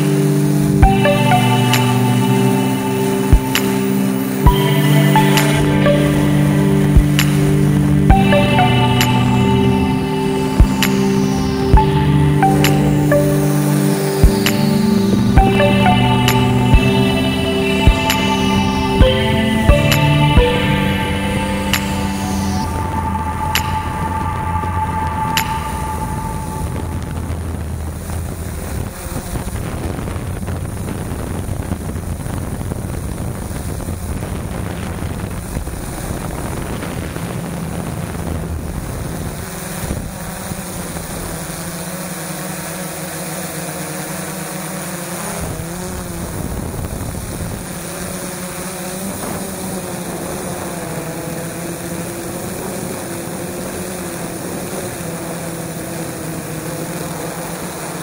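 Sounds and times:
drone motors and propellers: 22.8s - 58.0s.

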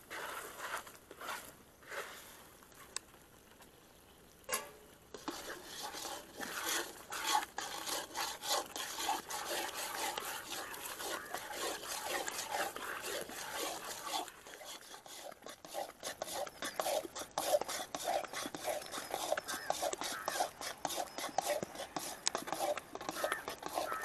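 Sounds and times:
ladle scraping thick food in pan: 4.6s - 24.0s.

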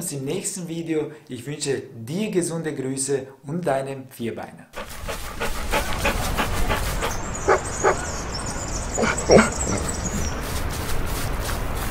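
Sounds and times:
dog barking: 4.8s - 8.4s.

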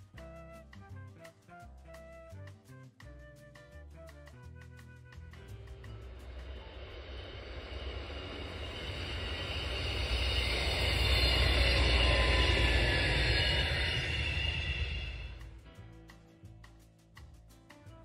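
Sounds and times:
train passing rumble: 5.6s - 15.6s
high ringing from wheels: 6.1s - 15.5s.

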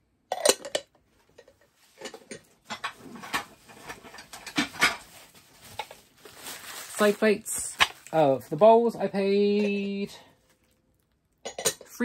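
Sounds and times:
ceramic bowls knocking and clinking: 11.4s - 12.0s.

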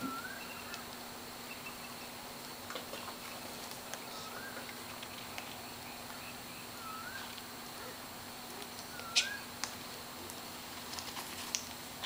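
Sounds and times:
cockatoo whistles: 0.0s - 0.8s, 6.8s - 7.3s, 8.9s - 9.5s.

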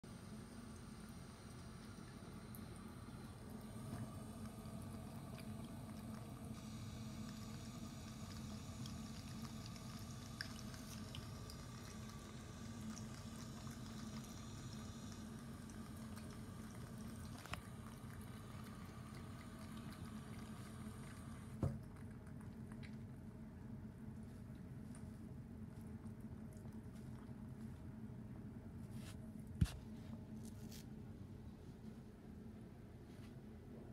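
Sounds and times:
cat drinking water: 0.3s - 27.8s
water trickling from faucet: 0.7s - 23.0s.

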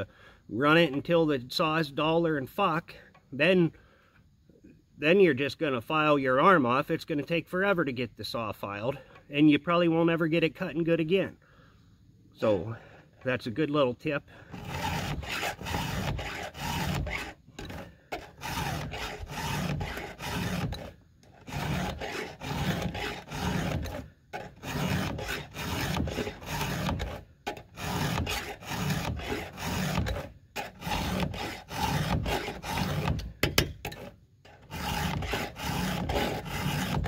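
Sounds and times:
file rasping on chainsaw chain: 14.4s - 37.0s.

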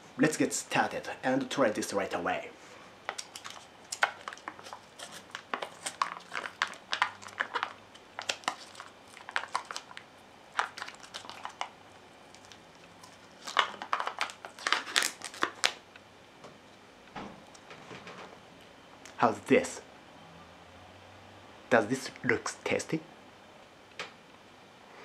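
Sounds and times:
plastic lid crinkling and tearing: 3.1s - 11.7s, 12.3s - 15.8s.

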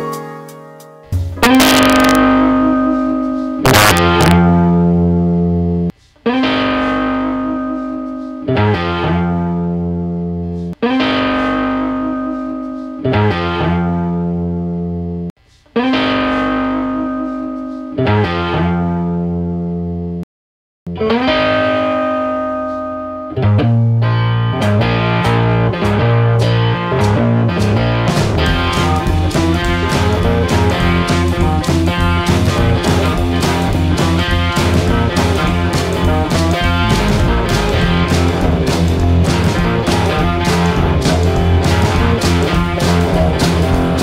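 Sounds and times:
guitar chords ringing: 0.0s - 20.2s, 20.9s - 44.0s.

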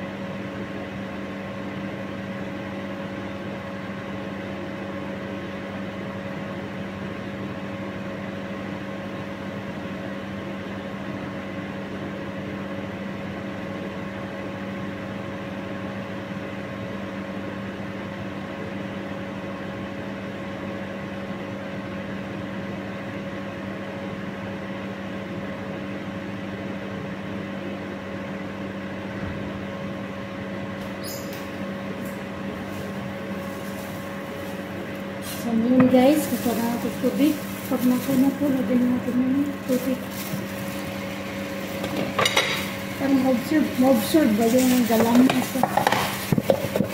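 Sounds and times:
appliance fan motor humming: 0.0s - 46.9s.

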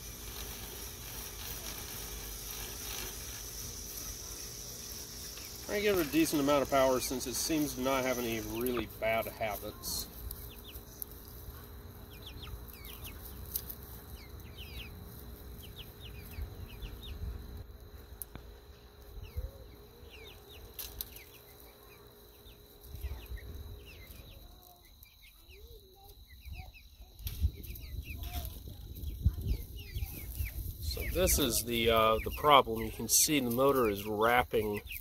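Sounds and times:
small birds chirping: 0.0s - 35.0s
wind rumbling on microphone: 26.4s - 32.0s.

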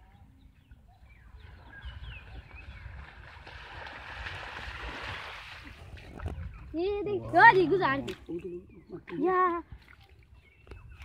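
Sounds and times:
net splashing through water: 2.9s - 6.2s.

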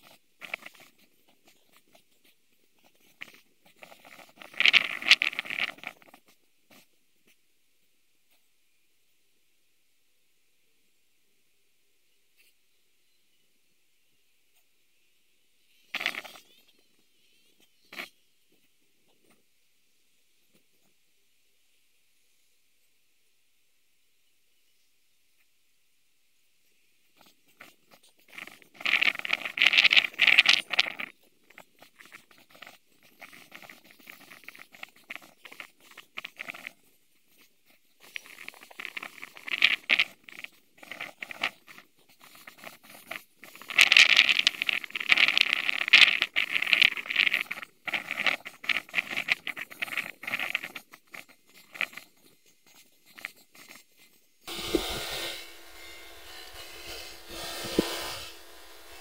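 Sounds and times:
rustling and crackling: 0.0s - 7.4s, 15.6s - 21.1s, 26.6s - 55.4s
steady hiss: 0.0s - 59.0s.

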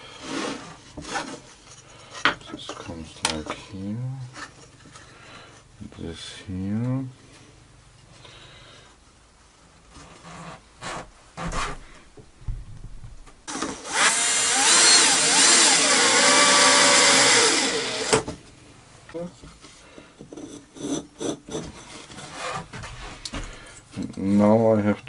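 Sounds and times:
power drill boring into wood: 13.5s - 18.3s.

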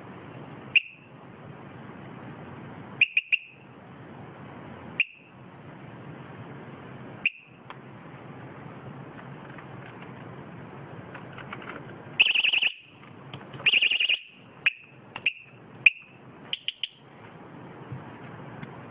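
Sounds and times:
bicycle alarm beeping: 0.8s - 1.0s, 3.0s - 3.6s, 5.0s - 5.3s, 7.2s - 7.6s, 12.2s - 12.9s, 13.7s - 17.0s.

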